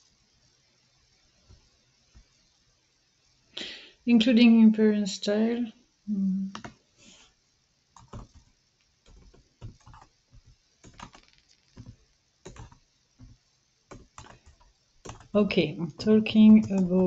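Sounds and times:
keyboard typing: 6.5 - 6.8, 8.0 - 17.0.

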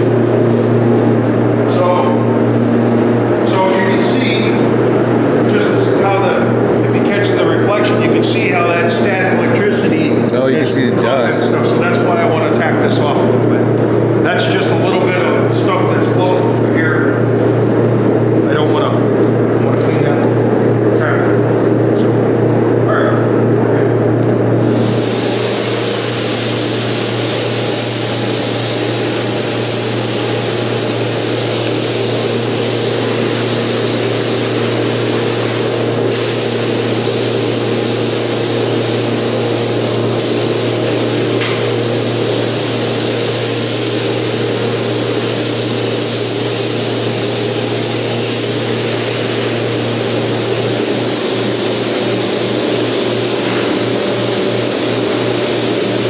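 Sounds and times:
spray gun hissing: 24.6 - 56.0.

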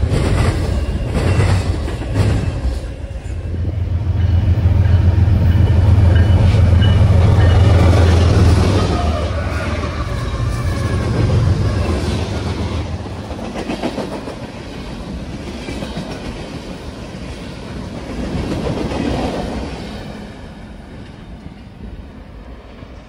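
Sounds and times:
diesel locomotive hum: 0.0 - 23.0.

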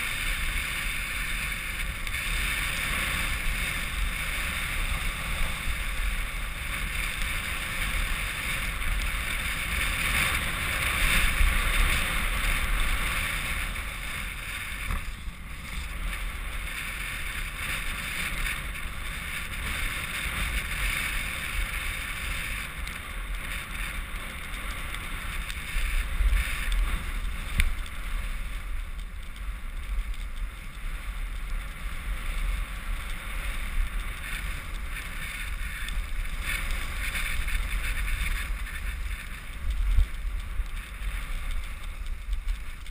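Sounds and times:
skis hissing on snow: 30.8 - 42.7.

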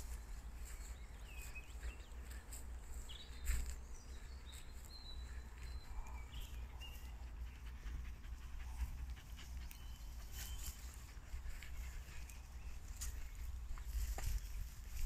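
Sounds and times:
dog panting: 5.2 - 12.8.

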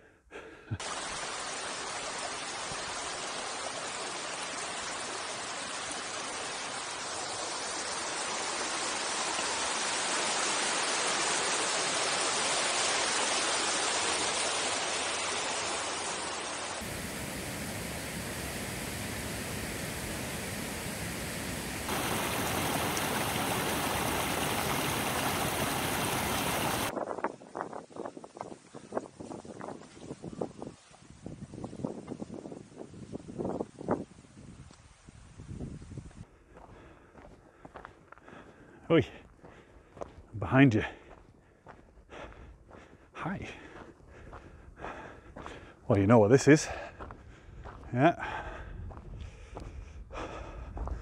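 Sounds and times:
stream rushing over rocks: 0.8 - 26.9.

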